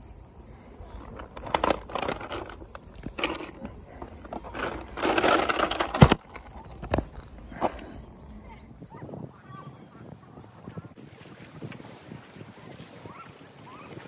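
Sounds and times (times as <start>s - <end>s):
plastic pouch crinkling: 1.0s - 7.2s.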